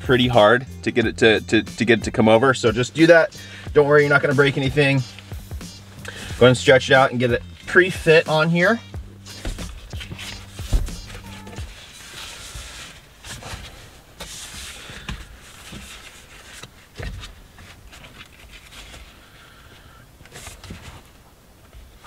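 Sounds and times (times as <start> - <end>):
leather rubbing and scuffing: 8.8 - 19.1
soft thumps: 9.3 - 11.7.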